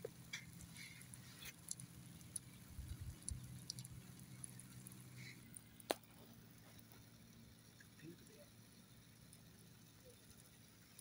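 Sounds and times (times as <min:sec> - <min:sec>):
light ticks: 0:00.0 - 0:07.1
water stream splashing on sand: 0:00.0 - 0:07.2
low steady hum: 0:00.0 - 0:11.0.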